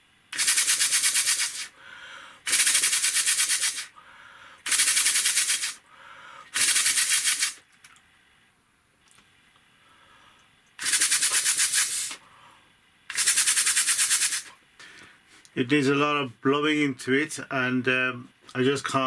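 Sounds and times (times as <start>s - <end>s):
person breathing in: 1.6s - 2.5s, 3.9s - 4.7s, 5.8s - 6.6s.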